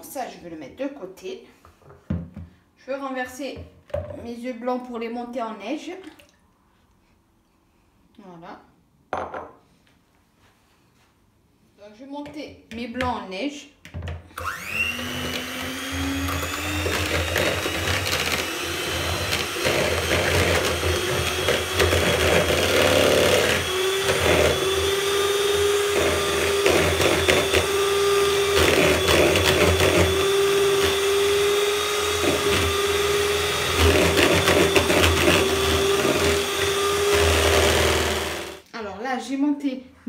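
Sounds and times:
electric mixer motor whine: 14.4s - 38.6s.

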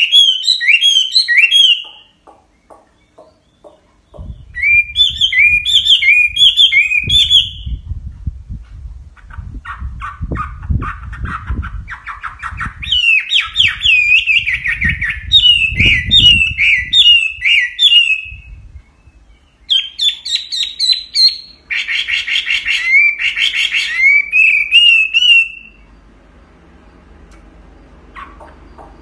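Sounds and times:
bird singing whistled notes: 0.0s - 7.9s, 11.3s - 26.0s
low thumps: 2.3s - 5.6s.

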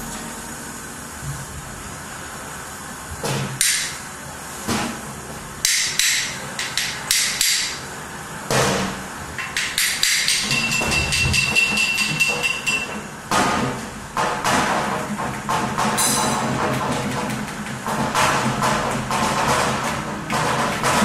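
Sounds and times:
percussive knocks and clatter: 5.6s - 7.8s, 8.5s - 21.0s.

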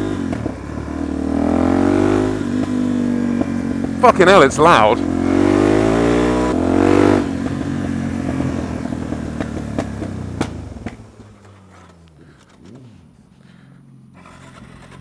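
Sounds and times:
motorcycle engine revving: 0.0s - 15.0s.

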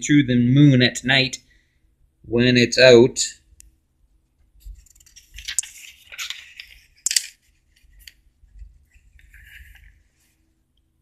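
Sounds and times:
paper rustling and sliding: 4.6s - 10.5s.

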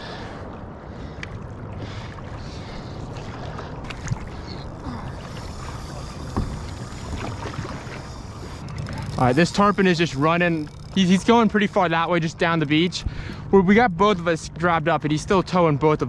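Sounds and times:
paddle strokes in water: 0.0s - 13.4s.

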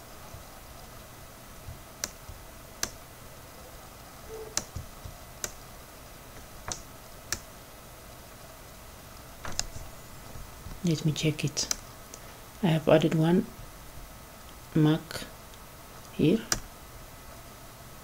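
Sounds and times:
faint steady hum: 0.0s - 18.0s
computer mouse clicks: 2.0s - 3.0s, 4.6s - 5.6s, 11.6s - 11.8s.

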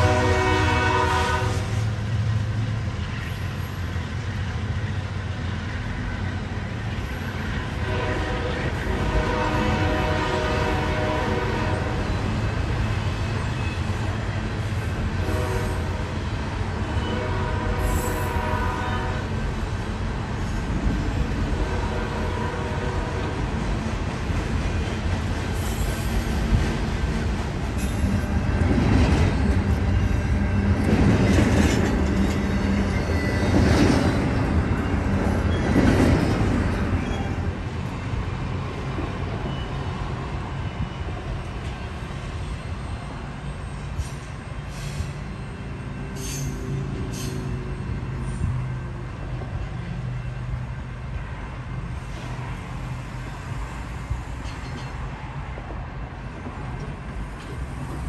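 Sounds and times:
freight train wheels clattering: 23.5s - 38.0s
high wheel squeals: 43.5s - 47.6s.

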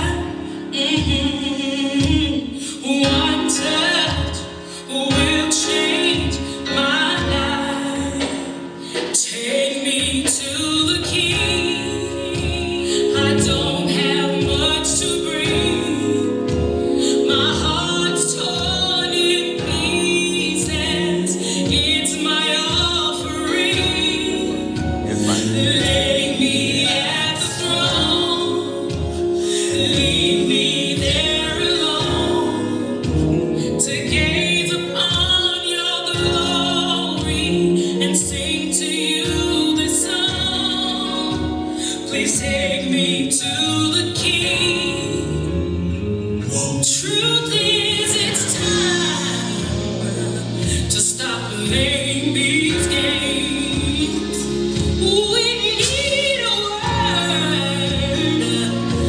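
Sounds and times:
gospel song with singing: 0.0s - 59.0s
steady beat: 10.0s - 38.6s.

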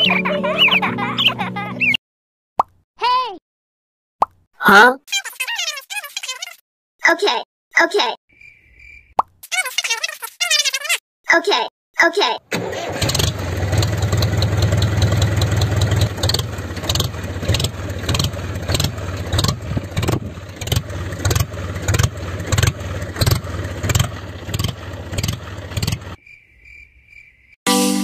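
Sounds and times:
mini tractor engine humming: 12.5s - 26.2s.

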